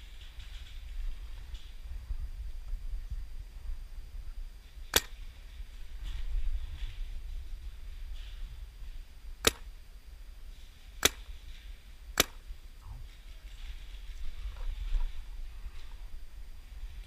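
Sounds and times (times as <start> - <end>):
paintball marker shots: 4.9 - 5.3, 9.4 - 9.7, 11.0 - 11.4, 12.1 - 12.5.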